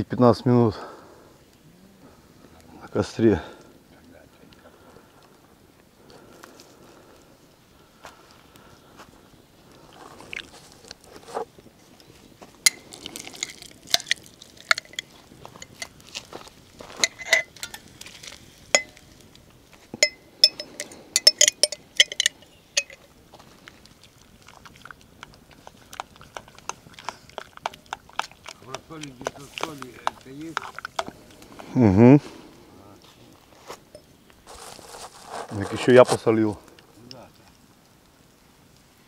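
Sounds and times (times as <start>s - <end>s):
metal pot and spoon clinking: 12.6s - 15.9s, 17.0s - 17.8s, 18.7s - 19.0s, 20.0s - 23.1s.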